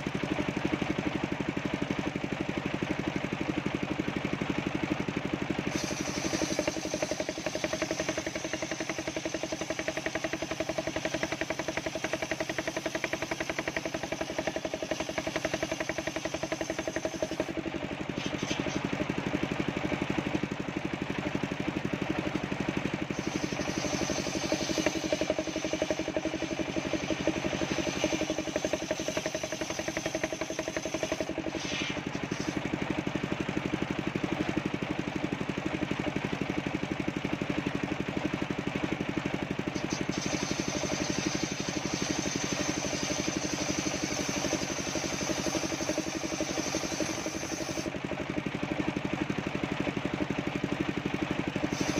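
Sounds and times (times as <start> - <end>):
saw bench engine drone: 0.0 - 51.9
high sawing whine: 5.7 - 17.5, 23.0 - 32.7, 39.7 - 47.9.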